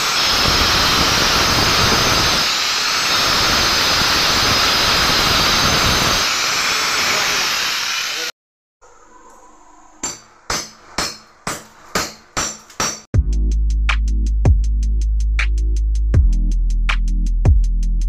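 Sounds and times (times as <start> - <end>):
angle grinder cutting masonry: 0.0 - 8.4
electronic music with a beat: 13.2 - 18.0.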